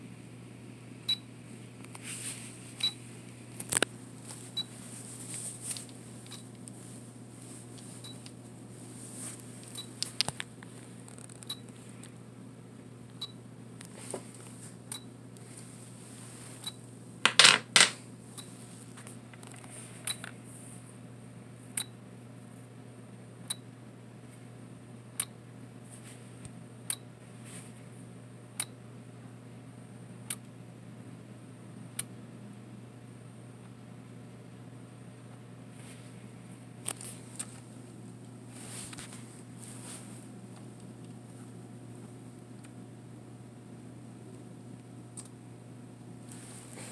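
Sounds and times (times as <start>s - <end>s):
batteries clattering on table: 17.3s - 18.0s.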